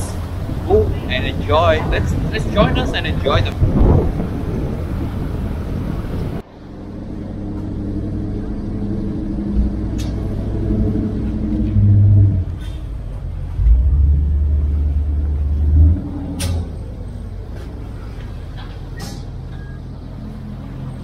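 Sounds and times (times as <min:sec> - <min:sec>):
ferry engine droning: 0:00.0 - 0:21.0.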